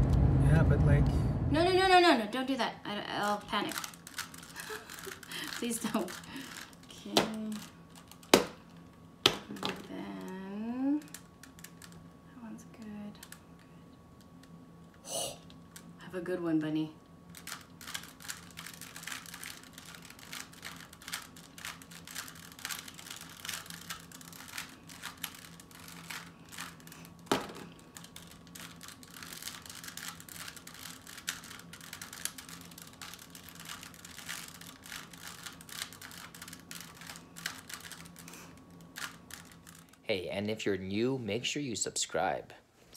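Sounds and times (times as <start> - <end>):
faint steady hum: 0.0 - 42.9
puzzle cube plastic clicks: 3.2 - 8.6, 17.3 - 40.0.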